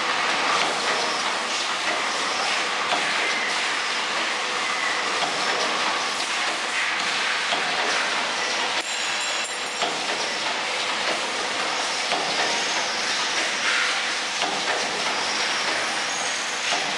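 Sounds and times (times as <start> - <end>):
machine rattling clatter: 5.1 - 16.9.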